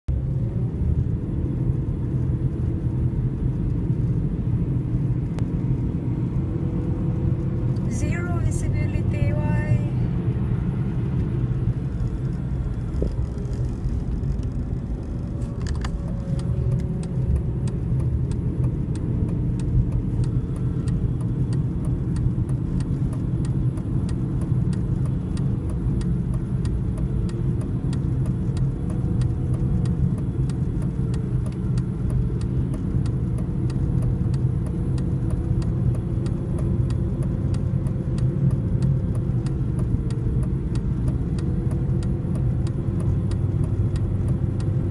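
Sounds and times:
car engine and tyre rumble: 0.1 - 44.9.

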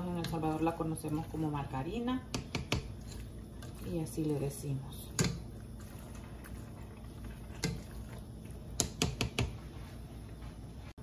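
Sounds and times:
stirring pasta in thick sauce: 0.0 - 8.8
simmering sauce patter: 0.0 - 9.8
utensil clicking against pot: 2.3 - 3.8, 5.1 - 5.4, 7.6 - 7.8, 8.8 - 9.5.

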